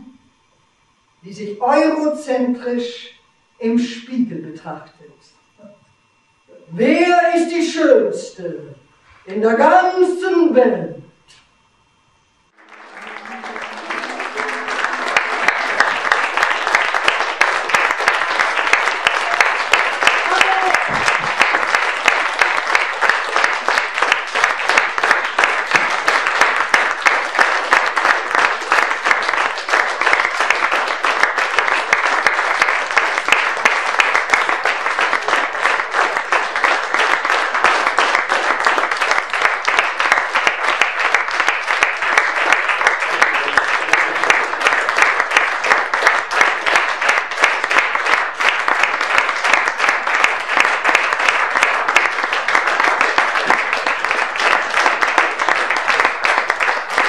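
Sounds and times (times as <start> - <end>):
audience applauding: 12.5 - 57.0.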